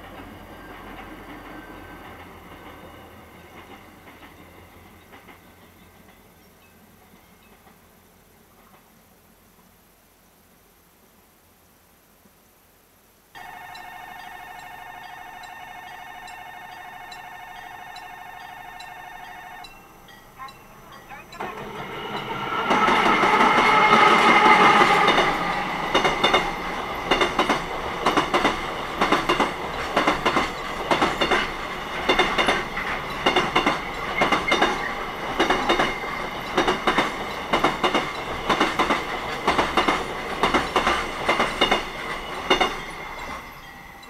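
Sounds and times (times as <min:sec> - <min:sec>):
electric locomotive whine: 0:00.0 - 0:09.4, 0:13.4 - 0:44.0
train wheels clacking on rail joints: 0:13.4 - 0:44.0.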